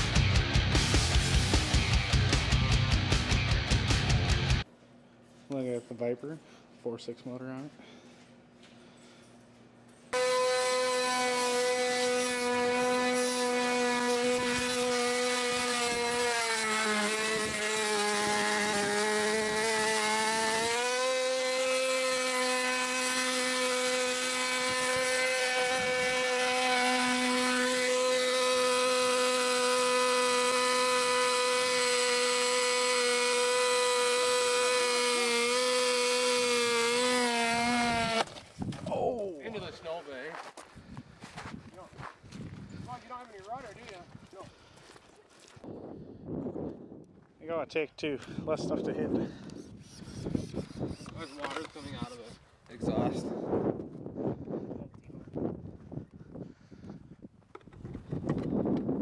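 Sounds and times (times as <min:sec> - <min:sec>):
small model engine at high revs: 0:10.2 - 0:38.3, 0:49.5 - 0:52.4.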